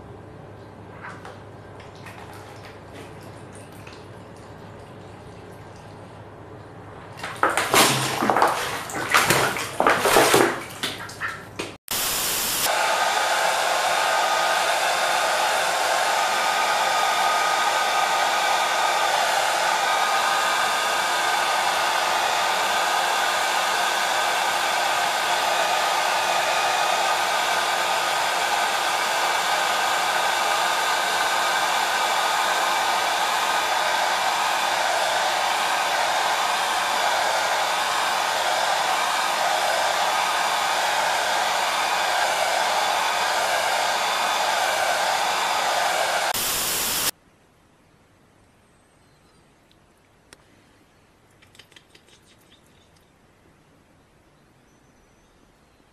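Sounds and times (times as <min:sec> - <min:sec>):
duck splashing in water: 0:01.0 - 0:05.9, 0:07.2 - 0:11.8
hair dryer blowing: 0:11.8 - 0:47.2.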